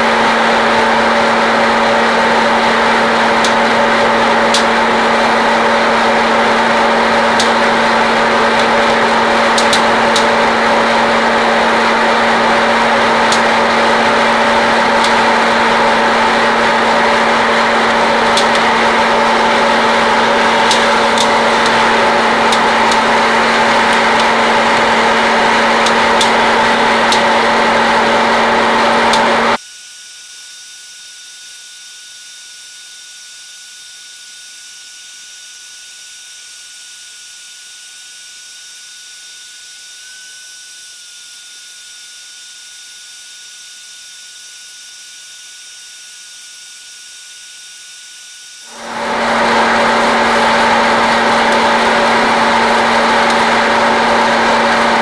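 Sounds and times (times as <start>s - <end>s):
popcorn popper fan and motor rushing: 0.0s - 29.6s, 48.6s - 55.0s
steady high tone: 2.6s - 29.6s, 48.7s - 55.0s.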